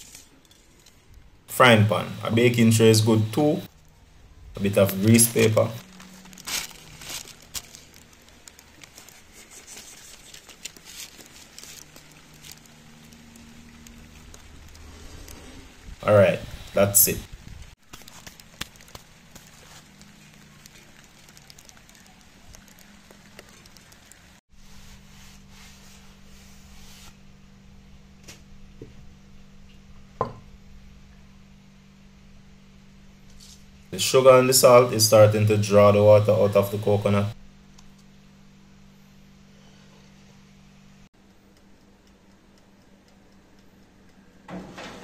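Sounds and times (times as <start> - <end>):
paper rustling: 0.0 - 1.0, 4.6 - 15.7, 17.8 - 27.2
low hum: 0.0 - 44.9
coconut shavings pattering: 4.6 - 27.2
cloth rubbing on wood: 24.6 - 27.2.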